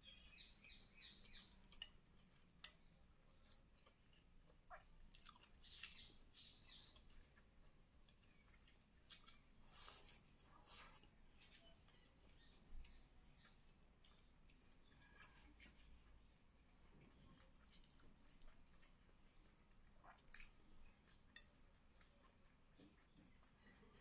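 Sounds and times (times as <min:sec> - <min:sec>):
chewing and wet mouth smacks: 0:01.0 - 0:06.1, 0:08.1 - 0:10.4, 0:17.4 - 0:23.1.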